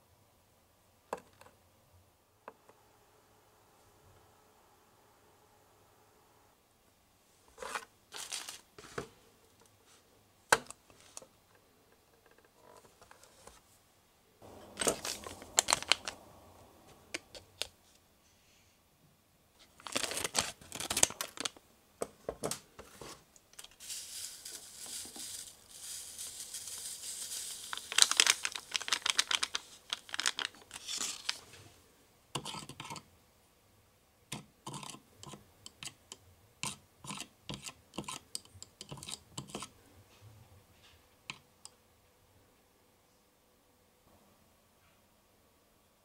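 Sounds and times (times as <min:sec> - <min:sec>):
plastic sachet crinkling and tearing: 0:08.1 - 0:08.7, 0:14.6 - 0:16.2, 0:19.7 - 0:21.6, 0:23.6 - 0:31.4
powder hissing from sachet: 0:14.4 - 0:16.2, 0:23.6 - 0:31.4.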